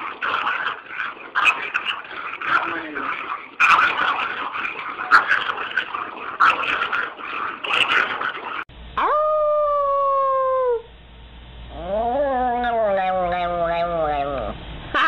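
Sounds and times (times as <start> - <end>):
rough noisy sound: 0.0 - 8.7
dog howling: 9.0 - 10.9, 11.7 - 15.0.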